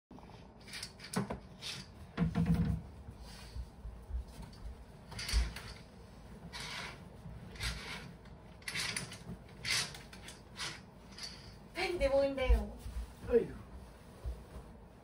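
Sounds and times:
curtain runners sliding on rail: 0:05.0 - 0:11.7.

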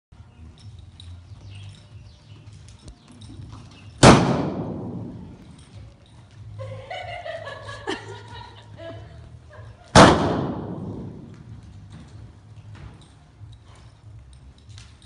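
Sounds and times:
gunshot echoing indoors: 0:04.0 - 0:05.4, 0:09.9 - 0:11.4.

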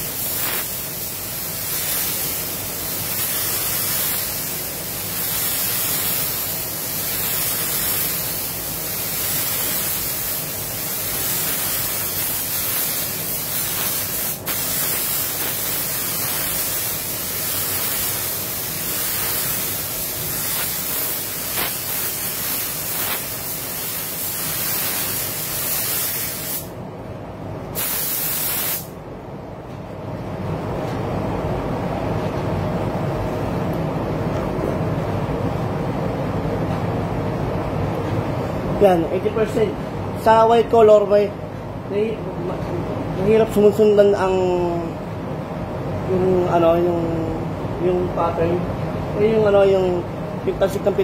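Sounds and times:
spray gun hissing: 0:00.0 - 0:26.7, 0:27.8 - 0:28.9.

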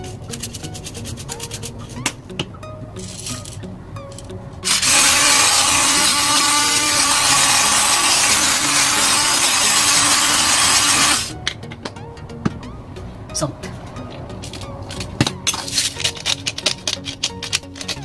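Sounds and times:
electric pepper grinder running: 0:04.6 - 0:11.3.

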